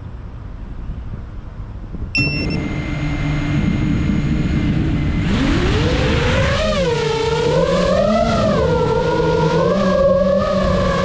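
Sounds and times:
brief high tone: 0:02.2 - 0:02.8
drone motors whining: 0:02.2 - 0:11.0.

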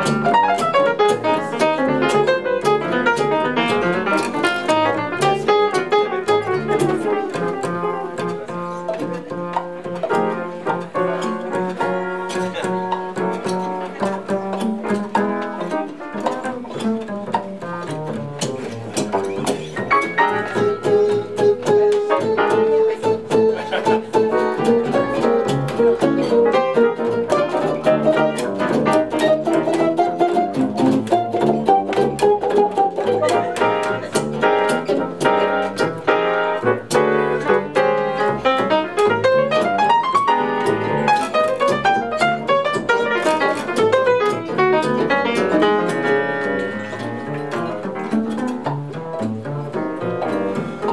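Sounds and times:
archtop guitar lines: 0:00.0 - 0:50.9
piano playing: 0:00.0 - 0:50.9
plucked double bass: 0:00.0 - 0:50.9.

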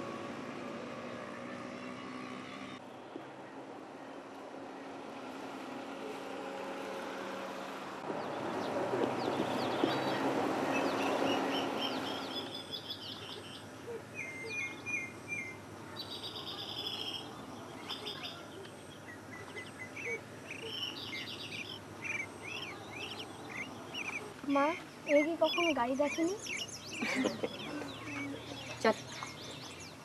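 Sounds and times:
vehicle rushing past: 0:00.0 - 0:13.8
birds chirping and trilling: 0:08.1 - 0:30.0.

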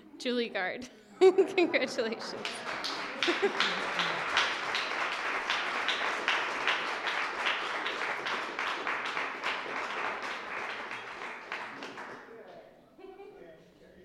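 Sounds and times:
audience applauding: 0:02.1 - 0:12.4.

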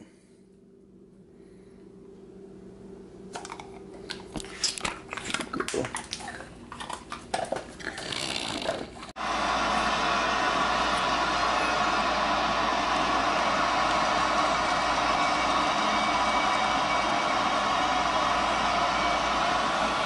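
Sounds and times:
dog chewing a treat: 0:03.3 - 0:09.1.

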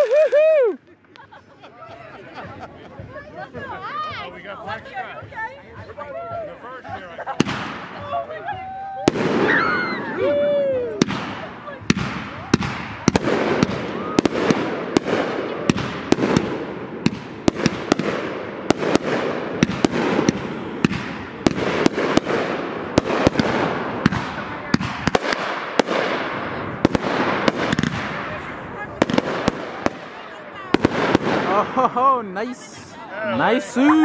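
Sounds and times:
fireworks crackling: 0:00.0 - 0:34.0
fireworks bangs: 0:07.3 - 0:31.9.

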